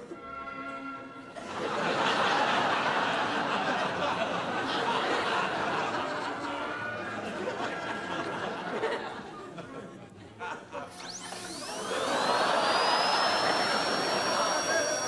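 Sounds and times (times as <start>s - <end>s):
studio audience laughing: 1.4s - 15.0s.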